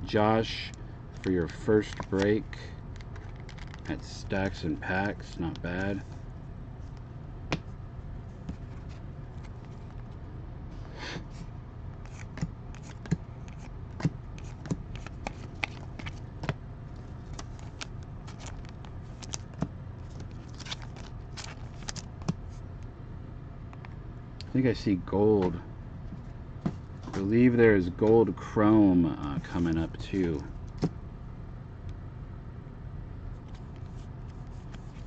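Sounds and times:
steady low hum: 0.0s - 35.0s
trading cards clicking and rustling: 1.1s - 6.1s, 12.0s - 22.4s.

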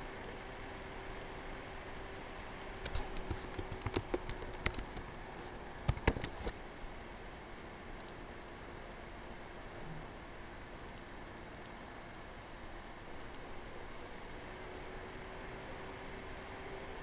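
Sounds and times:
typing on computer keyboard: 2.6s - 6.5s.

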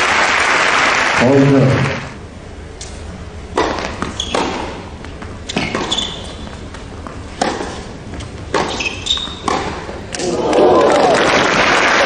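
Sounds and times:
racket hitting tennis ball: 3.5s - 10.4s.

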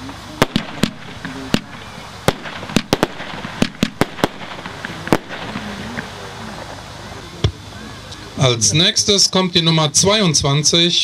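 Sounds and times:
firework shells cracking: 0.4s - 7.5s.

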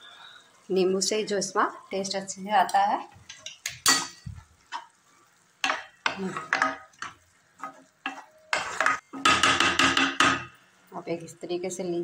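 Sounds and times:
wooden spatula scraping pan: 6.2s - 9.3s.

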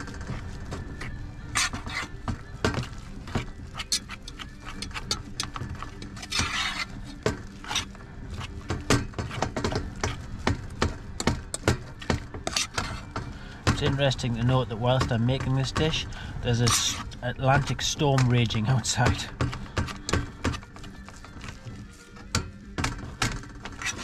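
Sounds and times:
fork scraping metal pan: 1.5s - 2.2s, 3.4s - 8.6s, 12.4s - 13.2s, 15.9s - 17.2s, 23.7s - 24.0s.

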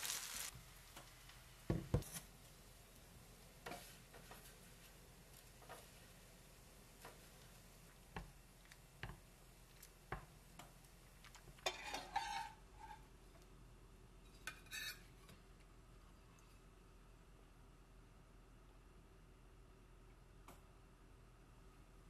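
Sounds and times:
metal spatula scraping frying pan: 11.6s - 13.1s, 14.4s - 15.1s.

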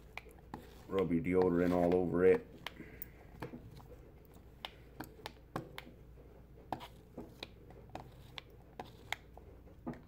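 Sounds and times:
plastic stick clicking and tapping: 4.6s - 6.0s.

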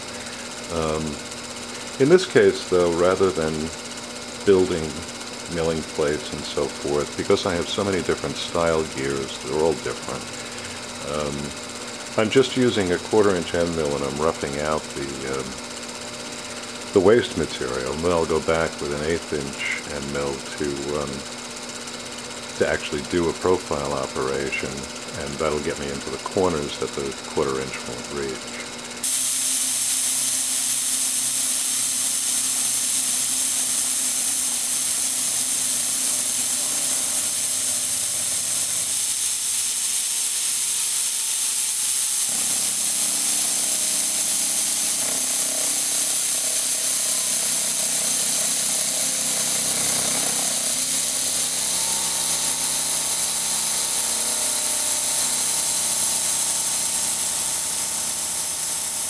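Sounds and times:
coolant spray hissing: 0.0s - 59.0s
milling machine hum: 0.0s - 59.0s.

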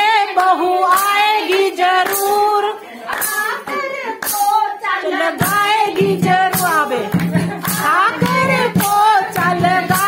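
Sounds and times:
handclaps keeping a beat: 0.0s - 10.0s
woman singing: 0.0s - 10.0s.

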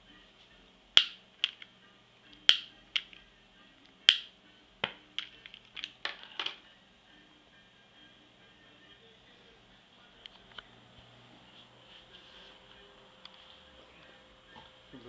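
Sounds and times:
lighter igniter clicking: 2.4s - 3.1s, 4.1s - 4.3s.

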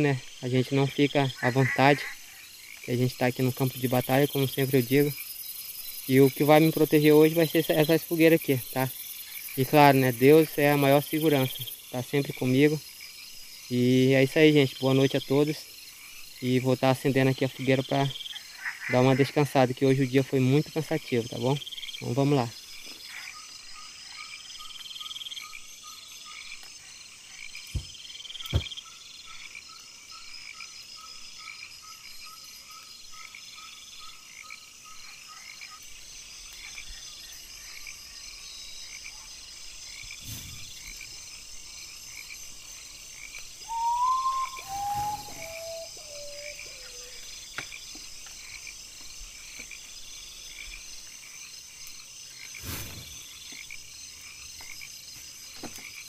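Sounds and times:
frogs and insects calling: 0.0s - 56.0s
call of descending notes: 43.7s - 46.8s.

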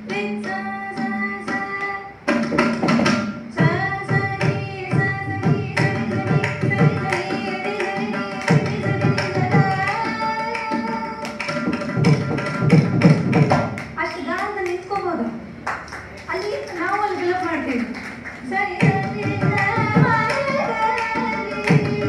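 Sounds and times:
woman singing: 0.0s - 2.5s, 3.5s - 12.2s, 18.4s - 22.0s
mridangam drum strokes: 0.0s - 15.0s, 17.6s - 22.0s.

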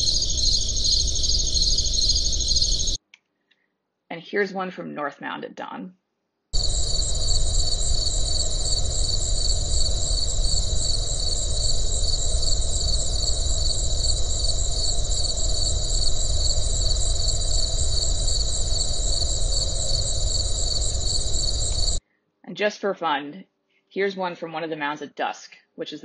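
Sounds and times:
insects trilling: 0.0s - 3.0s, 6.6s - 22.0s
low rumble: 0.0s - 3.0s, 6.6s - 22.0s.

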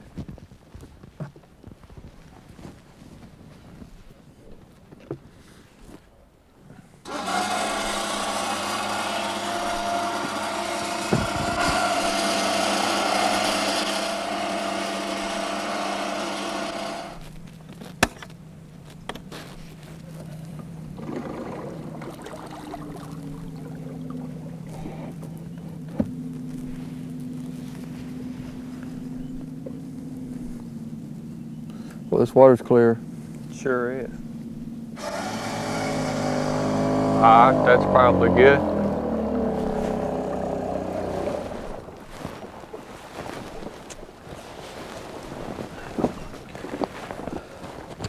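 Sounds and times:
quieter low hum: 0.0s - 48.0s
mechanical hum of rail carriage: 7.0s - 21.0s.

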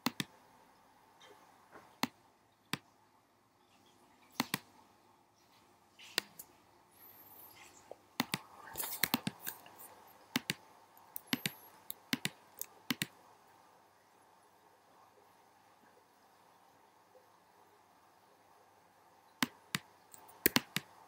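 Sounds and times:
computer clicks: 0.0s - 0.3s, 4.4s - 4.7s, 8.2s - 13.2s, 19.4s - 20.9s.

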